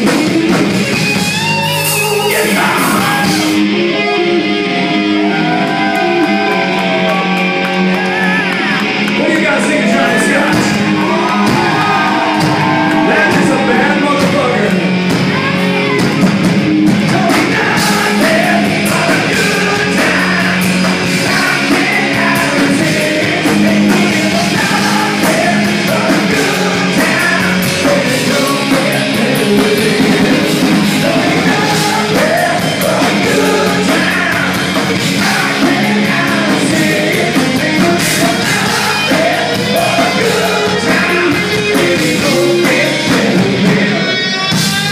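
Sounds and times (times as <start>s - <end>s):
live rock band playing: 0.0s - 44.9s
person singing: 2.0s - 3.6s, 17.1s - 44.9s.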